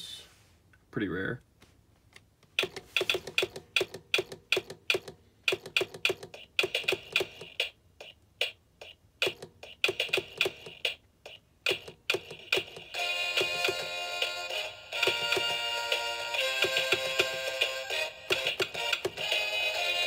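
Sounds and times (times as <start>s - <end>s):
toy woodpecker knocking: 2.6s - 13.9s, 16.3s - 19.5s.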